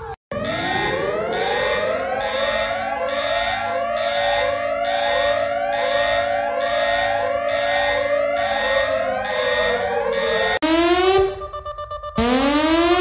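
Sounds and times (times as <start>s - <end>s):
rising siren whoops: 0.0s - 13.0s
steady held siren tones: 0.0s - 13.0s
high pulsing beep: 11.2s - 13.0s.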